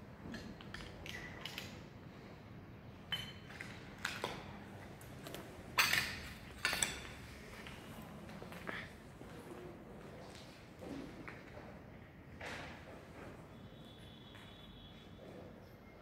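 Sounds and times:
metallic clinks of debris and tools: 3.1s - 4.3s.

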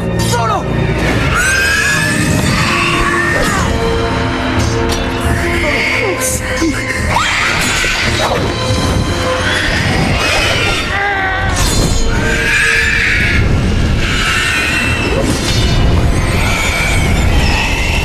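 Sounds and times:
dramatic film music: 0.0s - 18.0s
high wavering shrieks: 9.2s - 18.0s.

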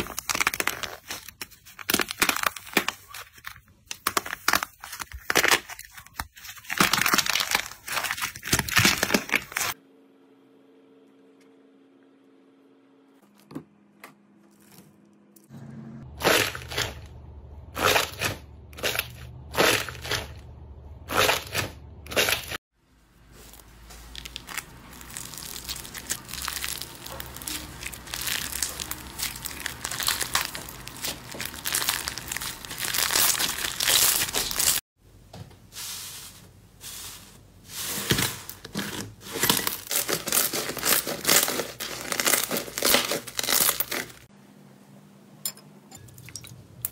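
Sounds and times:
foam slime crackling: 23.4s - 34.8s
slime squishing while kneaded: 23.4s - 34.8s.

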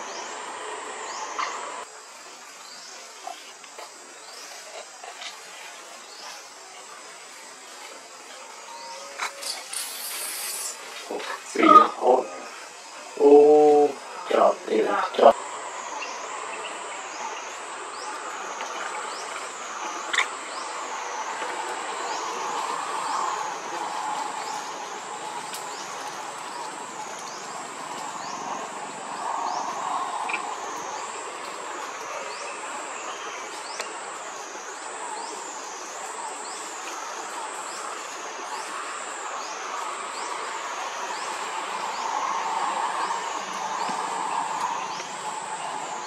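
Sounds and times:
background hiss: 0.0s - 46.0s
pulsing high-pitched insect call: 0.0s - 46.0s.

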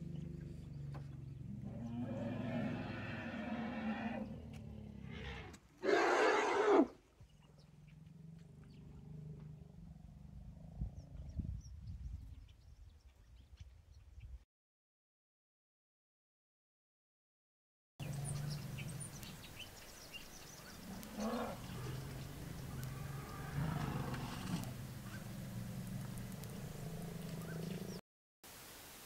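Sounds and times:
elephants rumbling: 0.0s - 6.7s, 20.3s - 28.0s.

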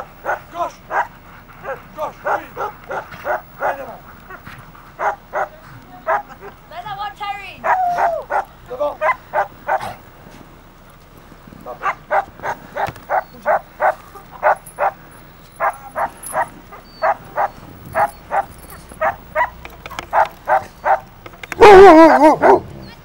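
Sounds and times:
sled dogs barking: 0.0s - 23.0s.

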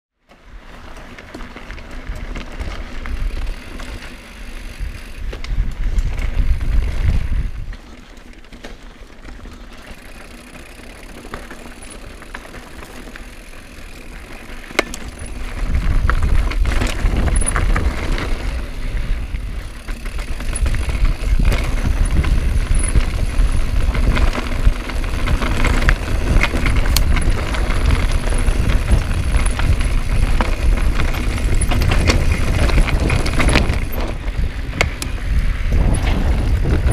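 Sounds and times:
bike rattling and knocking: 0.4s - 36.9s
low rumble on camera: 35.6s - 36.9s.

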